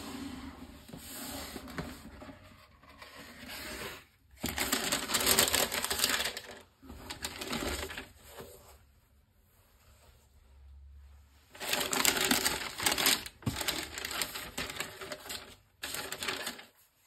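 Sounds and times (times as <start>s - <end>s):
tissue paper crinkling: 4.5s - 8.6s, 11.5s - 17.0s.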